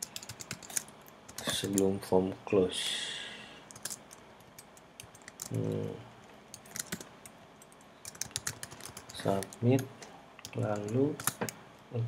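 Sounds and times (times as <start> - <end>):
computer keyboard clicks: 0.0 - 1.9, 3.7 - 5.9, 6.5 - 11.6.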